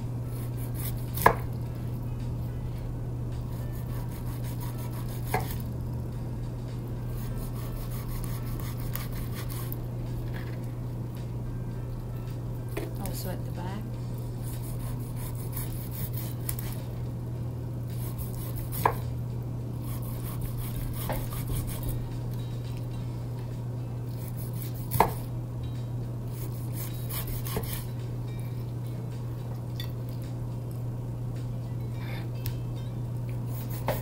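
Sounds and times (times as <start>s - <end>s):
steady low hum: 0.0s - 34.0s
knife scraping fish skin: 3.8s - 5.7s, 7.2s - 9.8s, 14.4s - 16.8s, 19.8s - 22.0s, 26.3s - 27.9s, 33.5s - 34.0s.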